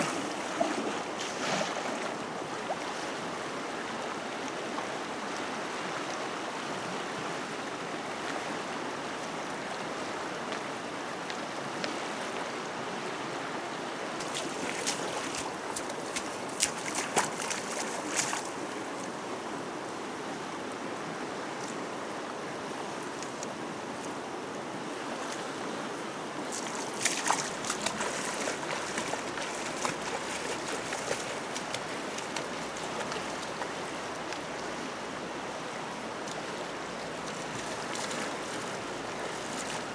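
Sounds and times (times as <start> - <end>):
fast-flowing river rushing: 0.0 - 39.9
net splashing and knocking in water: 14.2 - 18.5, 26.5 - 33.3.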